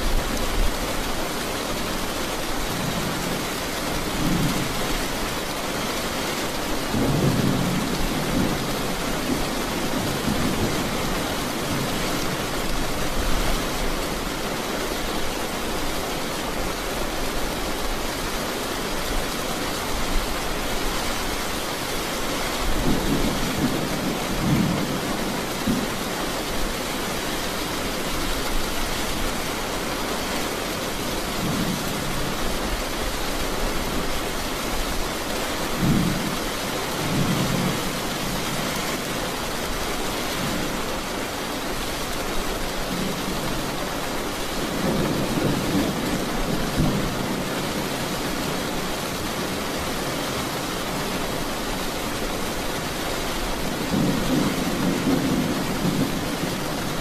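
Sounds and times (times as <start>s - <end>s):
rain falling on pavement: 0.0s - 57.0s.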